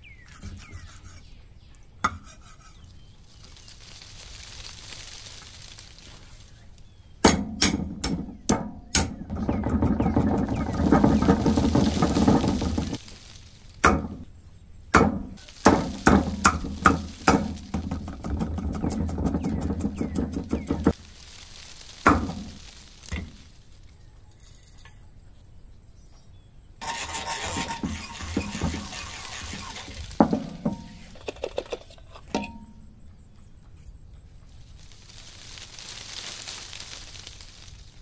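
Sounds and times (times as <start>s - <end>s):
thuds: 7.2s - 14.3s, 14.9s - 21.1s, 21.9s - 23.5s, 27.1s - 31.3s
cleaver chopping on wooden block: 13.8s - 14.2s, 15.0s - 20.9s
hand-cranked grinder grinding: 26.8s - 32.3s.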